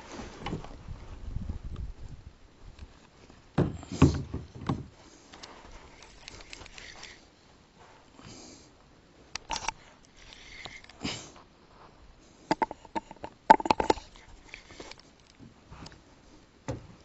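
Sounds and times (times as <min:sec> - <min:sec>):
fishing reel clicks and knocks: 0:09.4 - 0:11.0, 0:12.5 - 0:15.4
person sniffing: 0:10.2 - 0:11.4.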